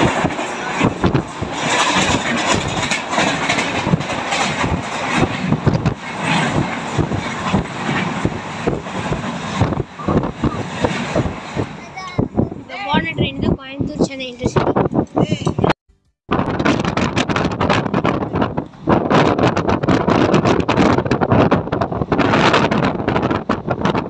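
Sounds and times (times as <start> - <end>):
wheels clattering over rails: 0.0 - 12.5
train passing with rushing rumble: 0.0 - 15.2, 16.4 - 24.0.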